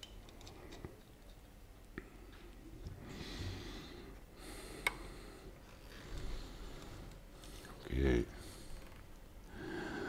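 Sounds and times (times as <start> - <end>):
soft breath out: 9.5 - 10.0.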